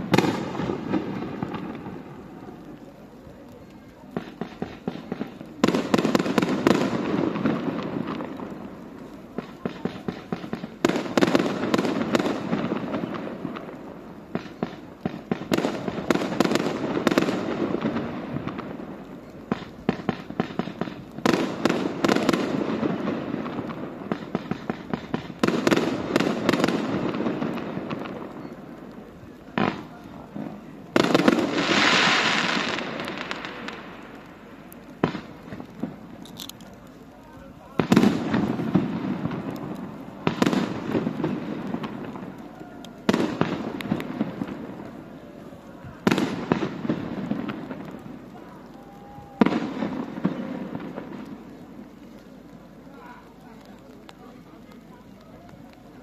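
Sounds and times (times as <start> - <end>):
firework crackling: 0.0 - 56.0
firework shells bursting: 4.1 - 37.0, 37.8 - 45.2.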